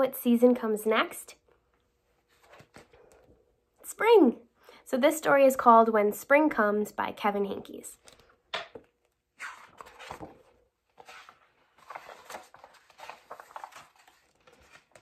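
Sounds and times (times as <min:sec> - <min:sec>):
book pages rustling: 0:02.0 - 0:03.4, 0:08.0 - 0:15.0.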